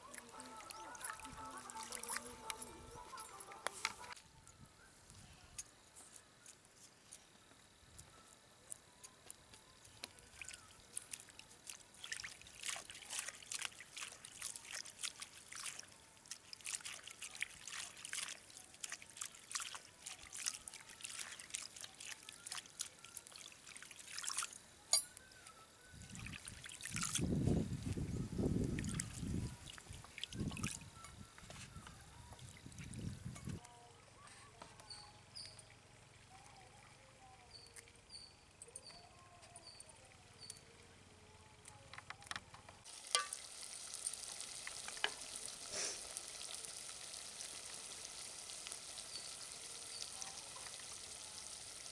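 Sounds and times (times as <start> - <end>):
water splashing: 0.0 - 2.7, 10.2 - 24.6
water trickling and dripping: 0.0 - 3.8, 9.5 - 25.2, 26.0 - 33.6, 42.9 - 51.9.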